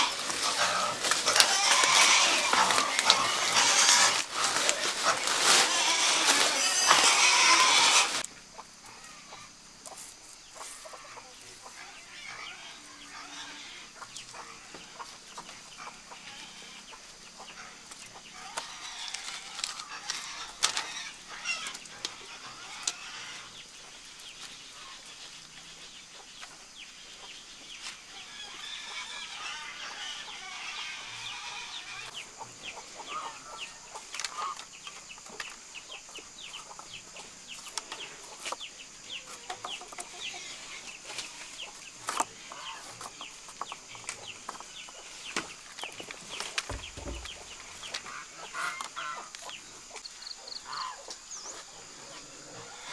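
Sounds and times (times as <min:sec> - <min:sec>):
bamboo strips clattering: 0:00.0 - 0:08.2, 0:17.9 - 0:23.0
chickens clucking: 0:00.0 - 0:52.9.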